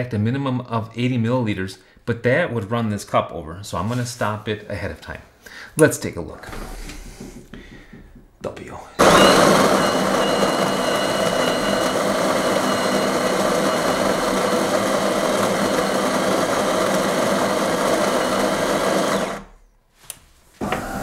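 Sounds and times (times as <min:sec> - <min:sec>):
coffee grinder running: 0:09.0 - 0:19.5.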